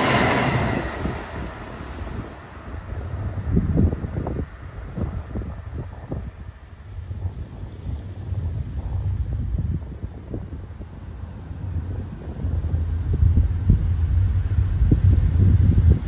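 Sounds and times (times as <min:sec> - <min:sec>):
insect chirping: 0:00.0 - 0:15.8
low rumble: 0:00.0 - 0:16.0.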